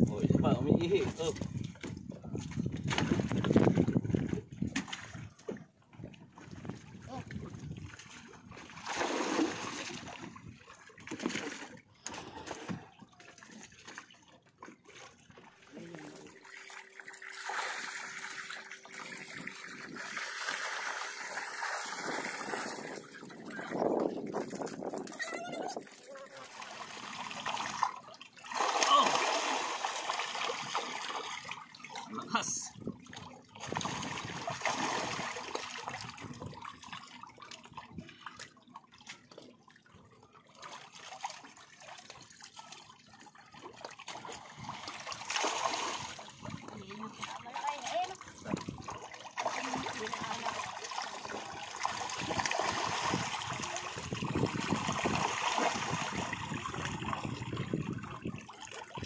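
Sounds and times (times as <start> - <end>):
fish thrashing and splashing: 2.6 - 6.9, 7.6 - 32.1, 33.1 - 39.3, 40.6 - 59.0.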